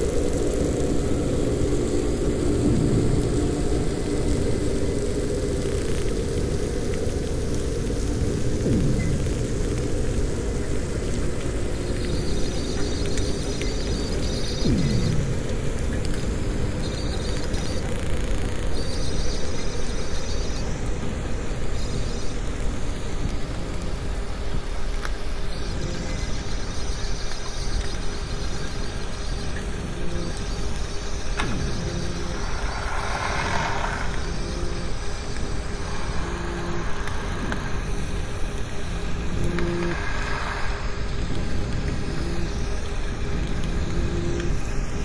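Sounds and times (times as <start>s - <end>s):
underwater ship engine rumble: 31.4s - 43.5s.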